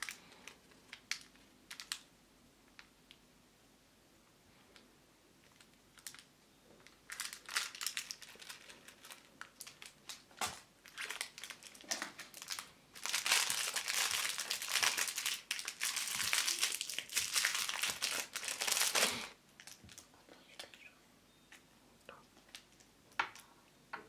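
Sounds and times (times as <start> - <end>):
plastic wrapper crinkling: 0.0 - 2.1, 5.4 - 20.8, 22.4 - 23.5.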